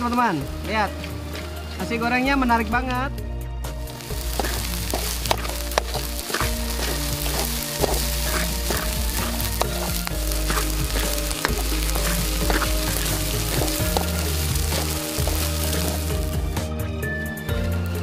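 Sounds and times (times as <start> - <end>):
rice sizzling in a pan: 0.0 - 2.6, 3.8 - 16.6
utensil scraping pan: 4.1 - 16.4.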